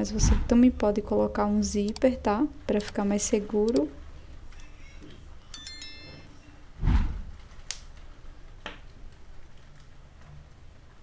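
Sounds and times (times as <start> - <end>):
low thump: 0.2 - 0.6, 6.8 - 7.3
metallic ping: 5.5 - 6.4.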